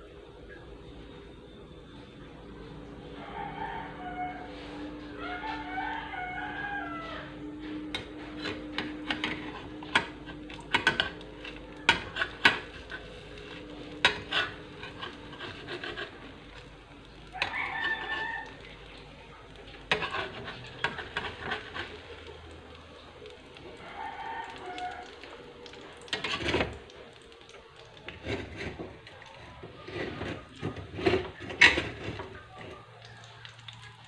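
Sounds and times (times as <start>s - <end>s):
rooster crowing: 3.0s - 12.4s, 17.3s - 19.1s, 23.6s - 26.4s
spatula scraping frying pan: 7.6s - 19.0s, 19.6s - 22.5s, 26.0s - 26.9s, 28.0s - 32.8s.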